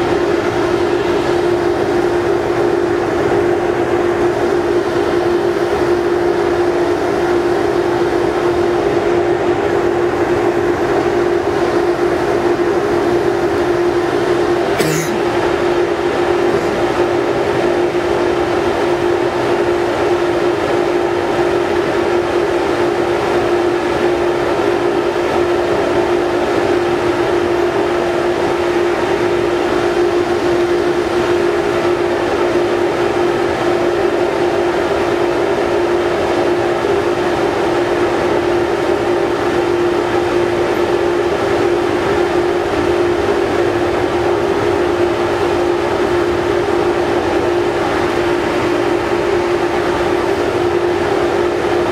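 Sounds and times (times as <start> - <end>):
mid-pitched hum: 14.8 - 15.8.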